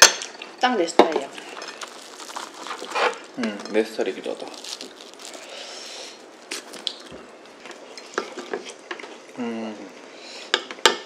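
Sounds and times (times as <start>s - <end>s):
toast tearing: 1.3s - 7.9s.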